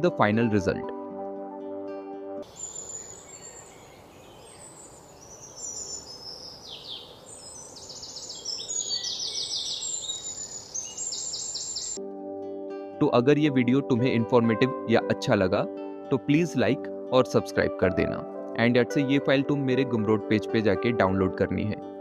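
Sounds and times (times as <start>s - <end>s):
birds chirping and singing: 2.5s - 12.0s.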